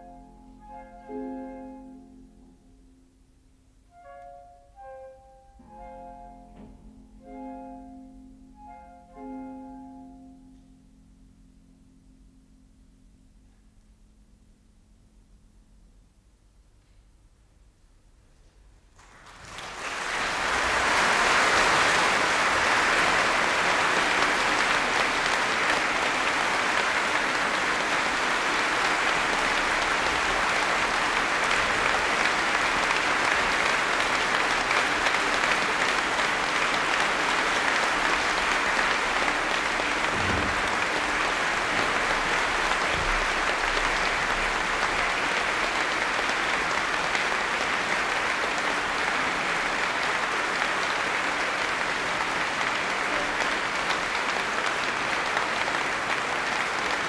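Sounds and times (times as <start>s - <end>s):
audience applauding: 19.0s - 57.0s.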